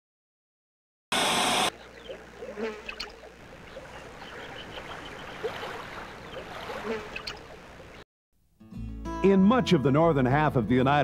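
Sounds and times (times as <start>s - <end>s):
tv static burst: 1.1s - 1.8s.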